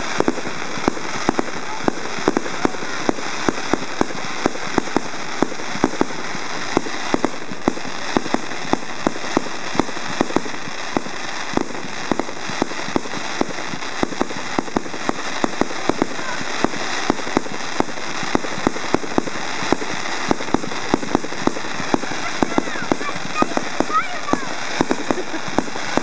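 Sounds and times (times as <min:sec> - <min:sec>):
fireworks bangs and pops: 0:00.0 - 0:26.0
steady hiss: 0:00.0 - 0:26.0.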